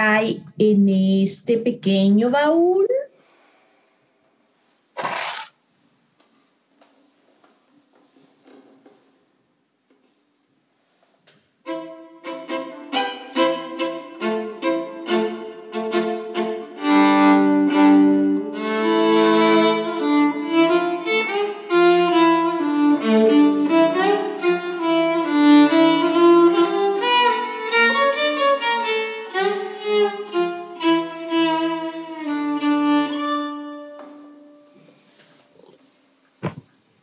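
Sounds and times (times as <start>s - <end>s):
solo violin playing: 11.7s - 34.7s.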